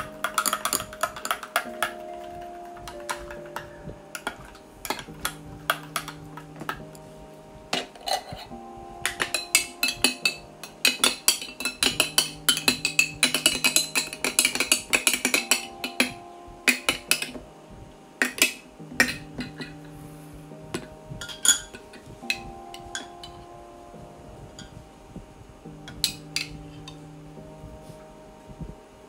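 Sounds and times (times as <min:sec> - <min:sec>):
soft background music: 0:00.0 - 0:29.0
metal spoon clinking glass jar: 0:00.2 - 0:02.0, 0:07.8 - 0:08.5, 0:09.1 - 0:16.1, 0:21.2 - 0:23.1.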